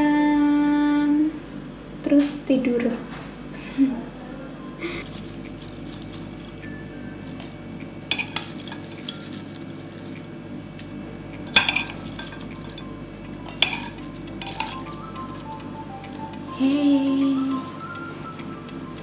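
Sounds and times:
metal spoon clinking on plates: 0:08.1 - 0:09.5, 0:11.5 - 0:15.0
background music: 0:12.6 - 0:19.0.

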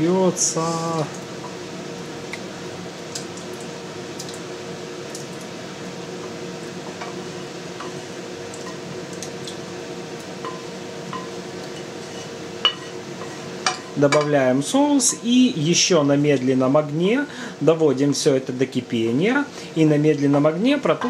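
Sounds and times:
steady background hum: 0:00.0 - 0:21.0
spatula tapping a pan: 0:10.4 - 0:11.9, 0:12.6 - 0:14.3.

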